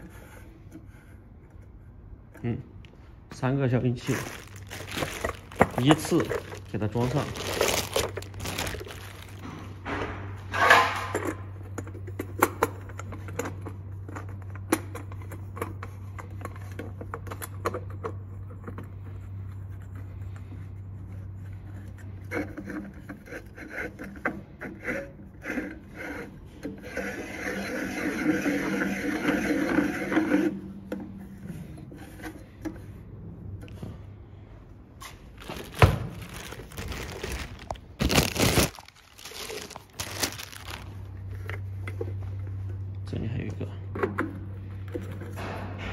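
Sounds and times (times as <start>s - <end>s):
plastic rustling: 3.8s - 9.8s, 35.0s - 41.3s.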